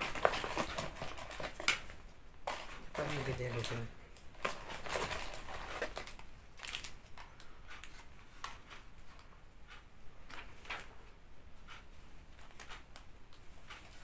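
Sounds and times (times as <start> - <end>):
plastic bag rustling: 0.0 - 8.4.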